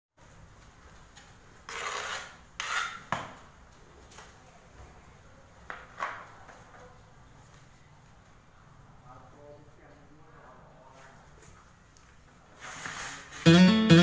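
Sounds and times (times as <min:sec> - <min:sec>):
tiles scraping on tiled floor: 0:01.1 - 0:03.4, 0:12.5 - 0:13.5.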